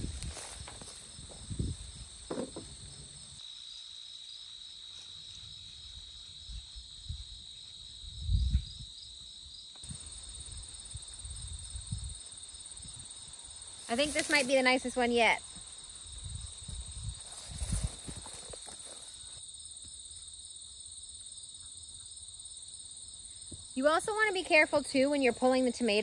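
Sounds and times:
dull thumps of digging soil: 0:00.0 - 0:03.0
insects chirring: 0:00.0 - 0:26.0.

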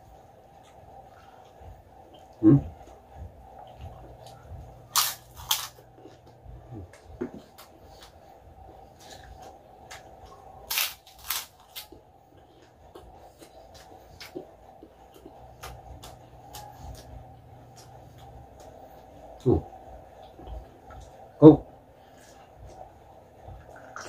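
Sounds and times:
loud crunching bites: 0:04.9 - 0:05.8, 0:10.6 - 0:12.0.

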